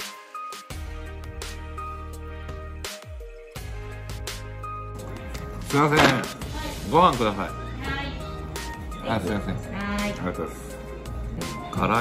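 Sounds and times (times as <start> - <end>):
percussive strikes: 5.8 - 6.6.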